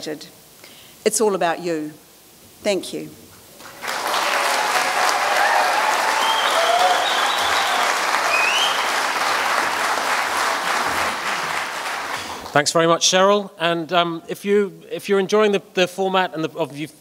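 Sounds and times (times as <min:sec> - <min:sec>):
audience applauding: 0:03.6 - 0:12.6.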